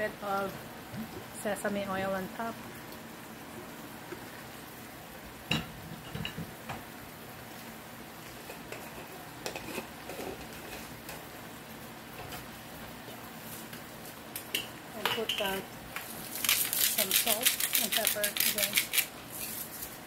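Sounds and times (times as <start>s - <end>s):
food sizzling in a pot: 3.5s - 20.0s
kitchenware clinks and knocks: 5.5s - 6.5s.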